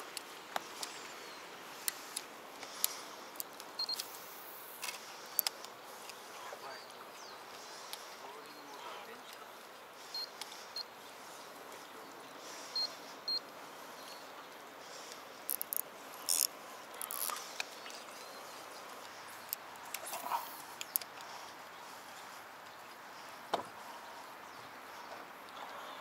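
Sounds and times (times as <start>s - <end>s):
faint outdoor background: 0.0s - 26.0s
fishing reel clicking: 15.5s - 17.6s.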